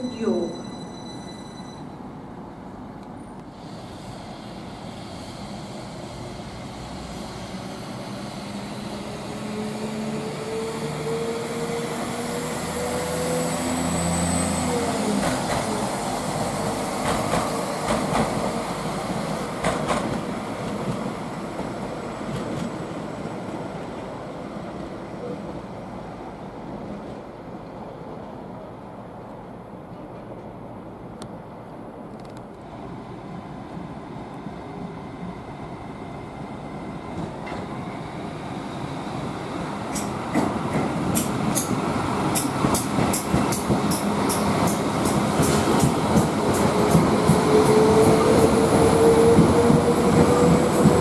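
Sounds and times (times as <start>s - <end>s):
train rumble: 2.2s - 51.0s
train wheels clicking over track: 14.6s - 22.8s, 39.8s - 51.0s.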